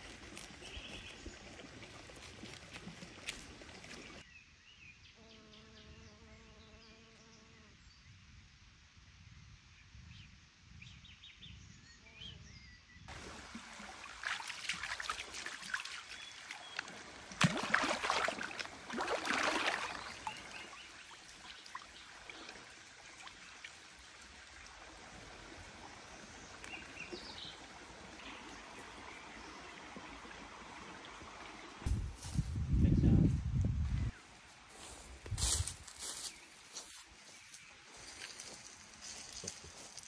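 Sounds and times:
stream running: 0.0 - 4.2, 13.1 - 32.0, 34.3 - 40.0
water splashing: 0.0 - 4.2, 13.1 - 31.9
bee buzzing faintly: 5.2 - 7.8.

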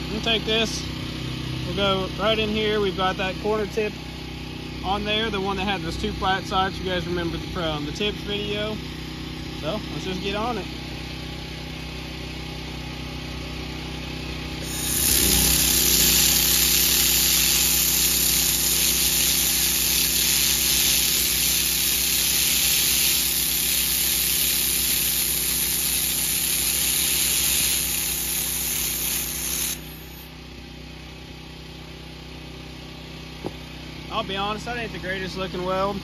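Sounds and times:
steady low hum: 13.3 - 30.4
laser welder hiss: 14.6 - 30.3.

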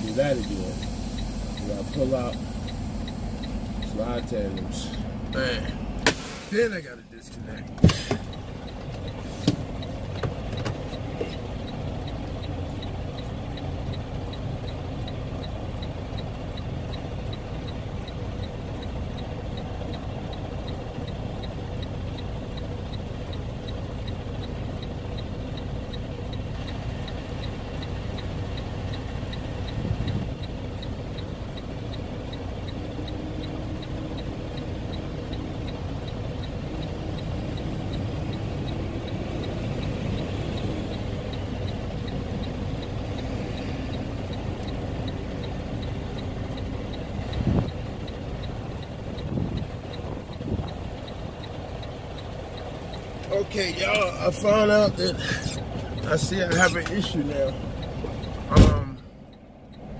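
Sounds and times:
diesel truck engine idling: 0.0 - 59.9
faint regular ticking: 0.0 - 59.9
short bump: 7.8 - 8.3.

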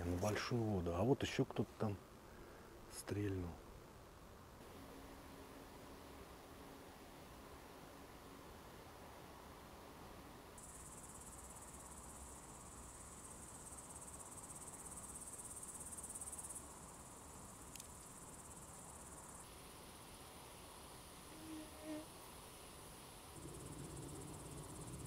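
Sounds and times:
crickets chirring: 10.6 - 25.0
faint click: 17.7 - 18.1.

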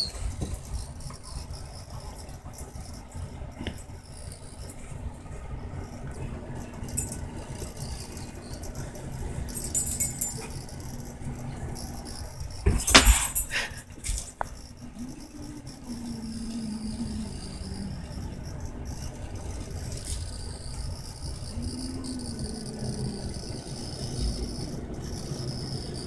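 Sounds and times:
dog collar tags jingling: 9.5 - 11.0.

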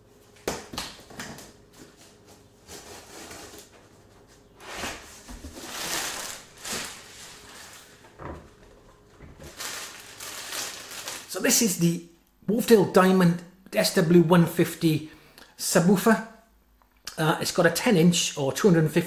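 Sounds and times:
plastic bag crackling: 4.6 - 11.6.

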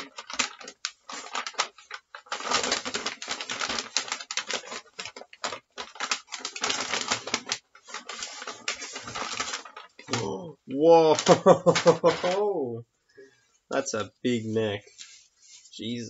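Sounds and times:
packing paper crinkling: 0.0 - 10.4, 11.0 - 12.5.

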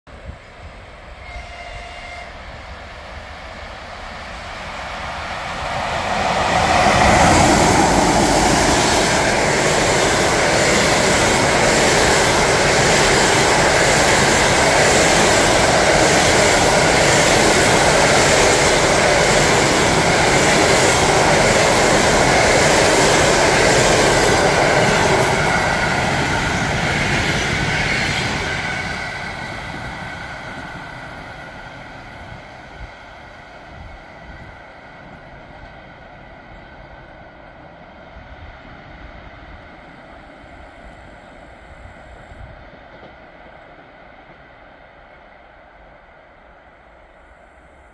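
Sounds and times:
train passing at speed: 0.1 - 47.9.

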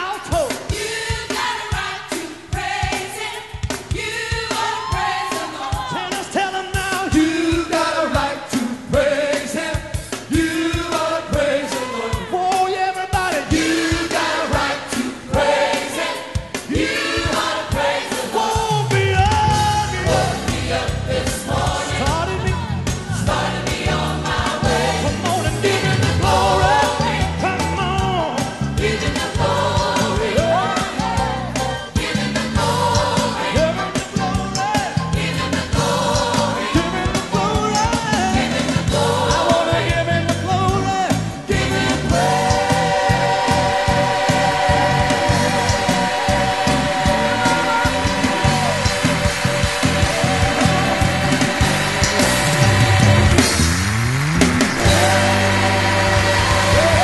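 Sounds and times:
group singing gospel: 0.6 - 53.8, 54.6 - 57.0
band playing: 4.0 - 57.0
low bass line: 43.9 - 57.0.

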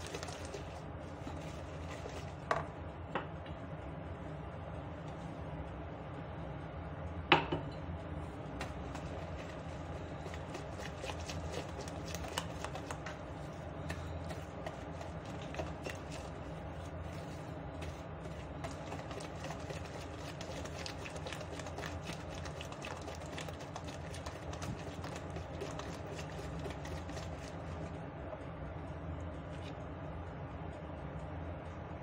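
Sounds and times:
steady low hum: 0.0 - 32.0
whisk clicking against bowl: 8.6 - 16.7, 17.8 - 27.6.

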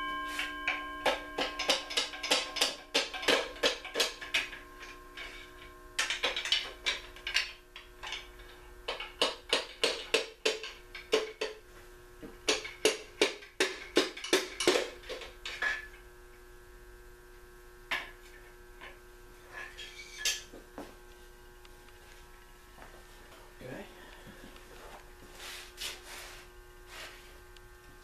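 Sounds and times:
metal clinking: 0.0 - 11.6
steady hum: 0.0 - 28.0.

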